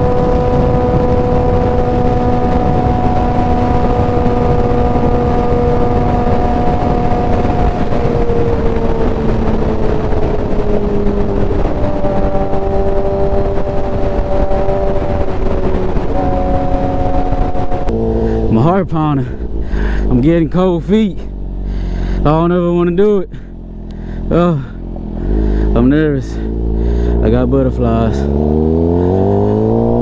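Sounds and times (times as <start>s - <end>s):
wind rushing: 0.0s - 22.4s, 23.3s - 30.0s
motorcycle engine cruising: 0.0s - 30.0s.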